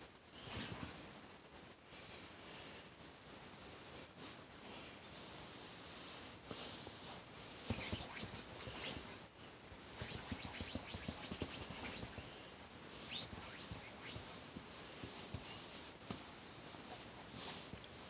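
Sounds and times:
cat claws scratching fabric: 0:07.7 - 0:18.0.

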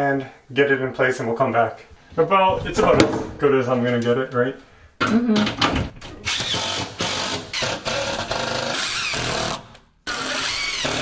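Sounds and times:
cordless drill driving screws: 0:06.3 - 0:11.0.

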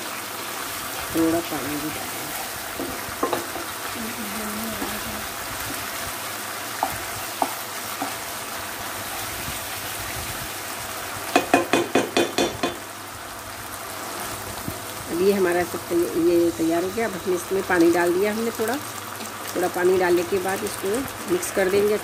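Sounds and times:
sauce sizzling in oil: 0:00.0 - 0:22.0
spatula knocking on pan: 0:02.8 - 0:03.7, 0:06.8 - 0:08.2, 0:11.3 - 0:12.8.

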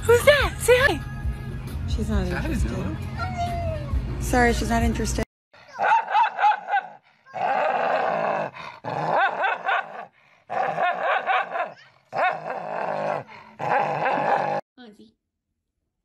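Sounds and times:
dog growling and snarling: 0:06.8 - 0:14.6.

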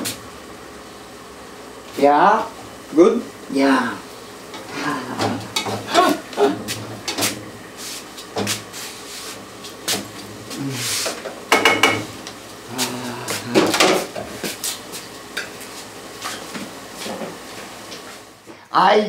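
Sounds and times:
pots and pans clattering: 0:04.5 - 0:07.4, 0:11.1 - 0:12.2, 0:13.5 - 0:14.5.

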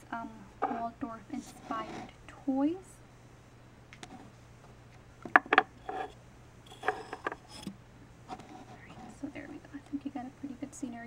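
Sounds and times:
wooden dolls clacking on wood: 0:05.3 - 0:06.0.

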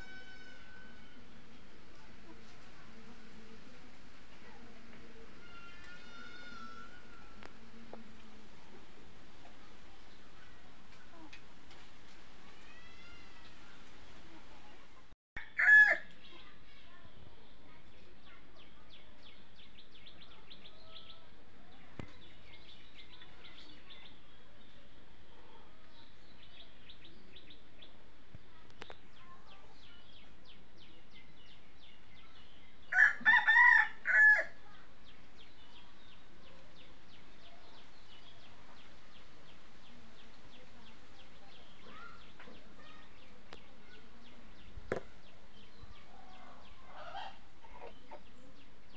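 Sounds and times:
rooster crowing: 0:32.9 - 0:34.5.

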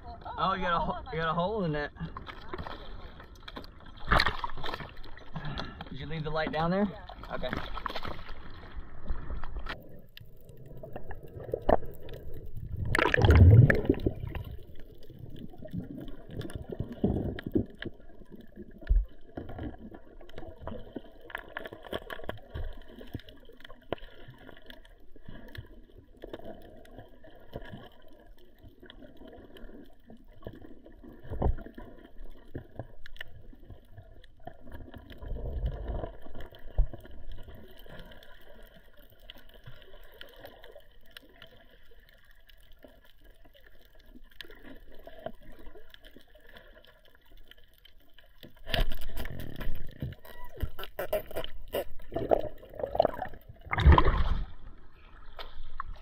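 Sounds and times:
low uneven water movement: 0:00.0 - 0:56.0
muffled underwater rush: 0:00.0 - 0:56.0.

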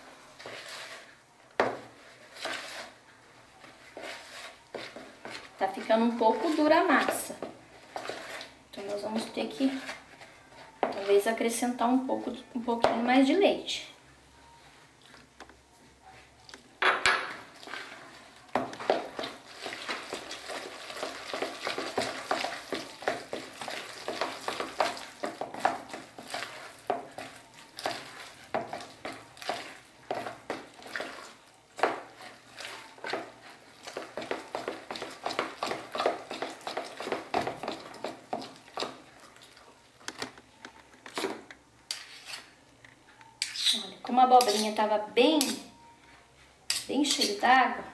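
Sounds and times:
spoon beating batter in bowl: 0:03.6 - 0:11.3, 0:18.6 - 0:39.7, 0:43.4 - 0:44.8.

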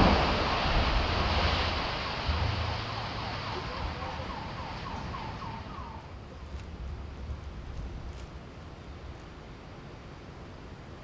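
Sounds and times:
building collapsing rumble: 0:00.0 - 0:05.4.

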